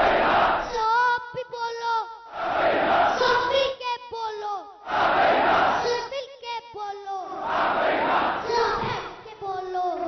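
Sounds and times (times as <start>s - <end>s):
crowd shouting in unison: 0.0s - 0.8s, 2.3s - 3.5s, 4.8s - 5.9s, 7.3s - 9.1s
child calling through microphone: 0.6s - 2.2s, 3.1s - 4.8s, 5.8s - 7.4s, 8.4s - 10.0s.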